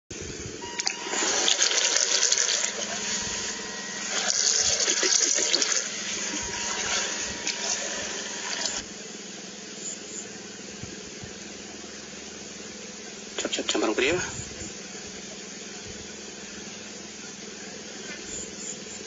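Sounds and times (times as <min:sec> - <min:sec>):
electric motor whine: 0:00.1 - 0:19.0
propeller spray splashing: 0:00.8 - 0:08.9.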